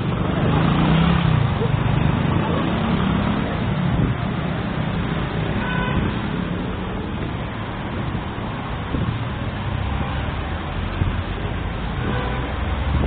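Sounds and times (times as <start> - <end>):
rumble of passing cars: 0.0 - 13.0
car horn toot: 5.6 - 6.1.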